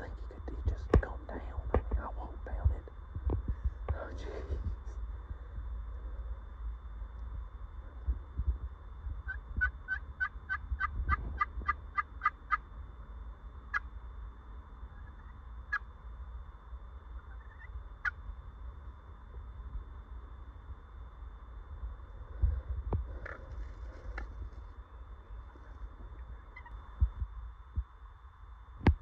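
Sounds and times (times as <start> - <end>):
wild turkey yelps: 9.3 - 12.6, 14.9 - 15.9, 17.2 - 18.2, 26.4 - 26.8.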